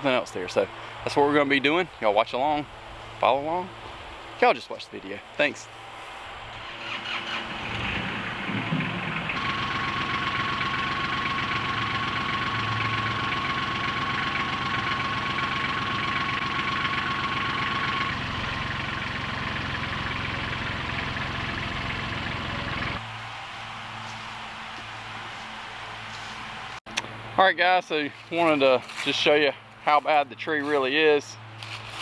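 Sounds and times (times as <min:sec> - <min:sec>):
engine idling: 0:05.8 - 0:25.3.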